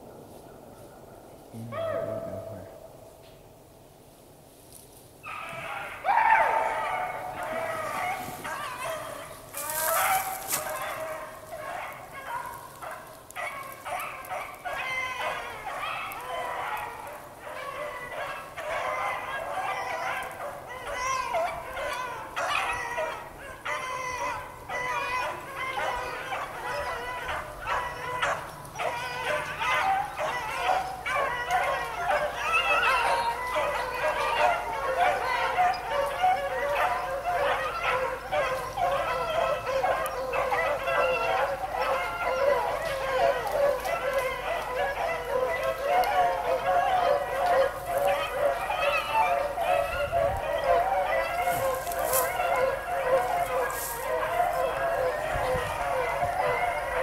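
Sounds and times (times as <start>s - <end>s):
beagles baying: 0.1s - 3.2s, 5.2s - 57.0s.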